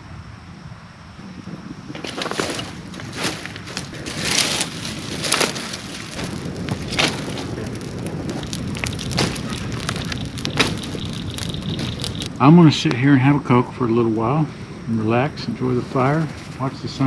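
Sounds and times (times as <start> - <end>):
steady fire hiss: 0.0 - 17.0
campfire crackling and popping: 1.4 - 14.2.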